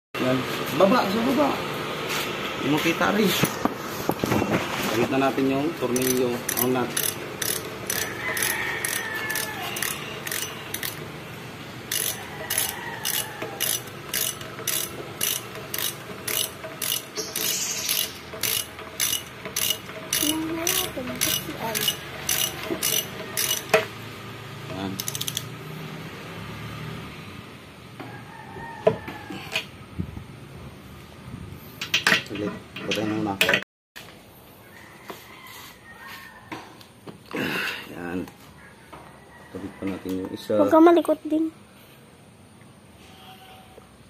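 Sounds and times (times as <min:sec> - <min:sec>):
ratchet wrench clicking: 0:05.9 - 0:11.1, 0:11.9 - 0:23.9, 0:24.9 - 0:25.5.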